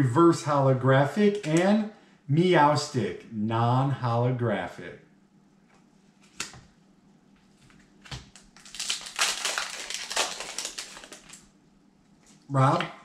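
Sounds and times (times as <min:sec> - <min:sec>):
foil wrapper crinkling and tearing: 0:08.0 - 0:11.5.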